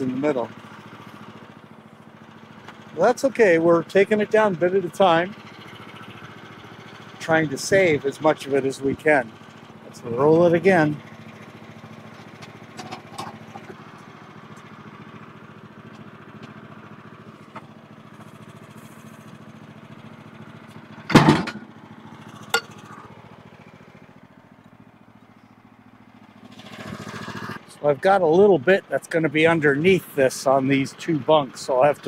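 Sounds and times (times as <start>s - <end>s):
sawmill engine idling: 0.0s - 32.0s
log thumping onto bunks: 21.1s - 21.6s.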